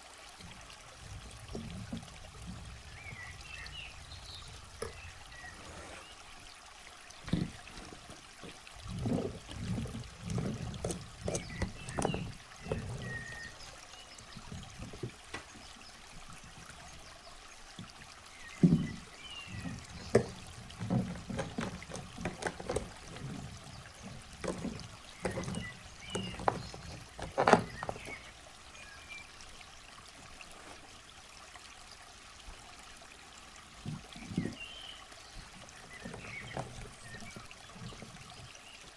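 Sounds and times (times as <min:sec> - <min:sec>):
plastic toys rustling and knocking: 0:07.3 - 0:13.5, 0:18.6 - 0:28.3, 0:35.9 - 0:38.5.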